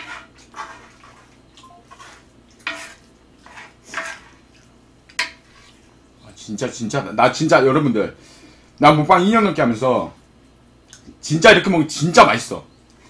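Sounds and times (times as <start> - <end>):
spatula scraping griddle pan: 0.0 - 4.5.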